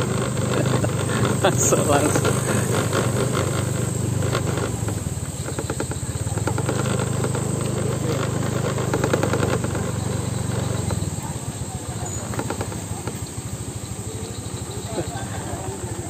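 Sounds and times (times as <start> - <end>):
small engine running: 0.0 - 16.0.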